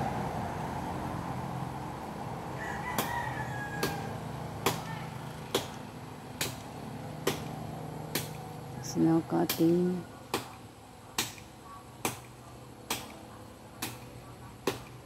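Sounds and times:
blade chopping into wood: 4.6 - 4.9, 5.5 - 5.8, 6.4 - 8.4, 11.2 - 13.2, 14.6 - 15.0.

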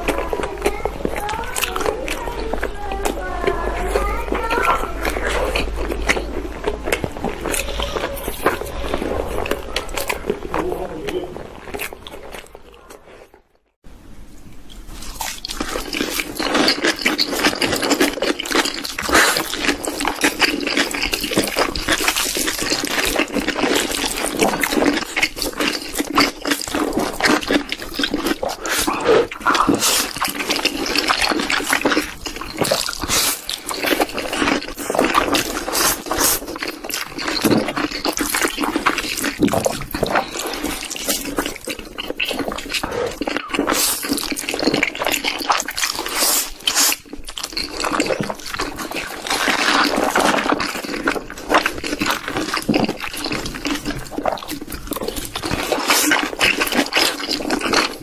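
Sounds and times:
mouth smacks and chewing: 0.0 - 13.5, 14.5 - 58.0
slurping noodles: 15.0 - 58.0.

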